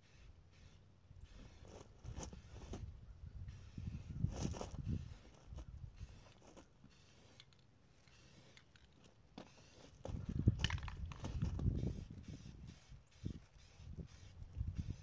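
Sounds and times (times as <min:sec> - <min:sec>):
wind buffeting microphone: 0:02.0 - 0:06.3, 0:10.0 - 0:15.0.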